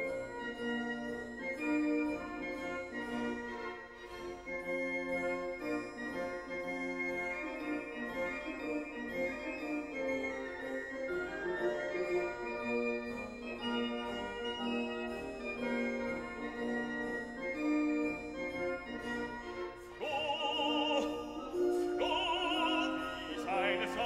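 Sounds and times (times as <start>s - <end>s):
keyboard melody: 0.0s - 24.0s
high singing voice with vibrato: 20.0s - 24.0s.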